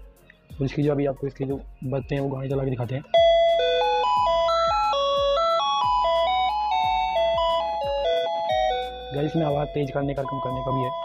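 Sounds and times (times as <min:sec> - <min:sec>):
electronic chime melody: 0:03.1 - 0:11.0.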